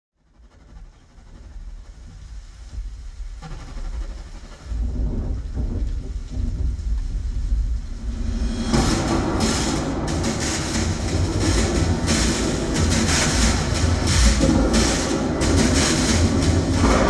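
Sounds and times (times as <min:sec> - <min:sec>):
deep rumbling: 0:00.2 - 0:17.0
rushing thunder-like noise: 0:00.7 - 0:17.0.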